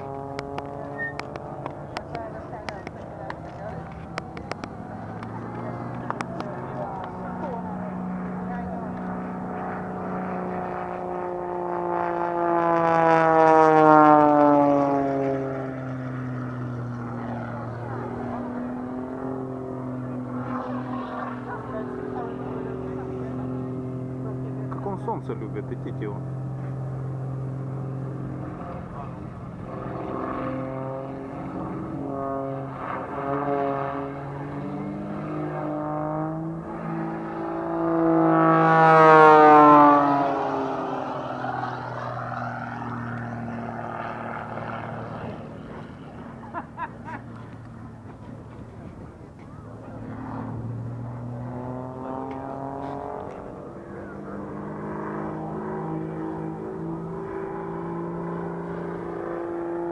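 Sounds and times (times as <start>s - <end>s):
propeller plane flyby drone: 0.0s - 59.9s.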